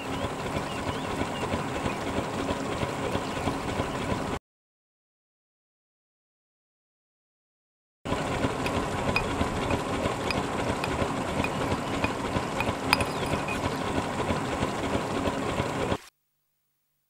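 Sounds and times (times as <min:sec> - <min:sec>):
steady mechanical rumble: 0:08.1 - 0:16.0.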